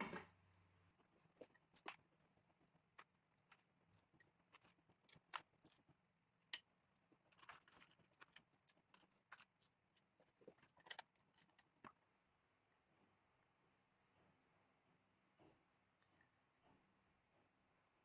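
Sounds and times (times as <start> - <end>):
metal washers and screws clinking: 1.0 - 12.0.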